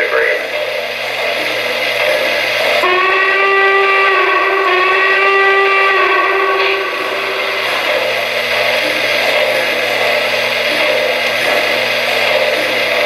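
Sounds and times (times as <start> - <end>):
model trains running on track: 0.0 - 2.9, 7.0 - 13.0
multi-tone steam whistle: 2.0 - 13.0.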